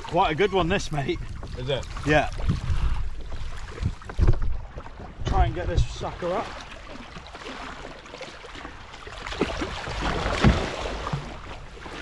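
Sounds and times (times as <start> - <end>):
fish splashing water: 6.3 - 12.0.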